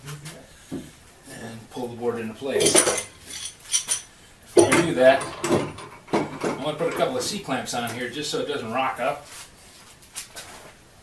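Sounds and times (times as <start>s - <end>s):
metal clatter: 4.6s - 7.3s.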